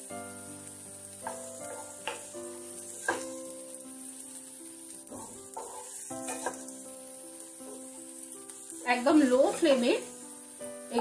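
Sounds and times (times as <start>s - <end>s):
background music with held notes: 0.0s - 11.0s
vegetables sizzling in oil: 0.0s - 11.0s
wooden spatula scraping pan: 5.1s - 6.7s.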